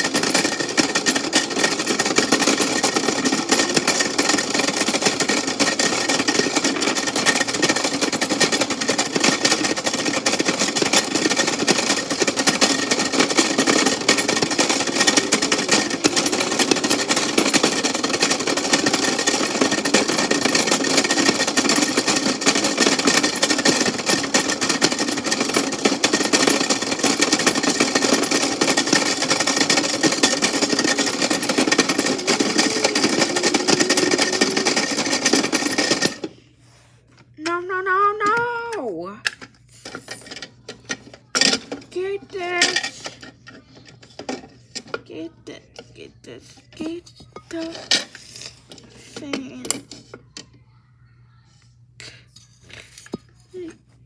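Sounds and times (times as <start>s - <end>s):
fast dense rattle: 0.0s - 36.3s.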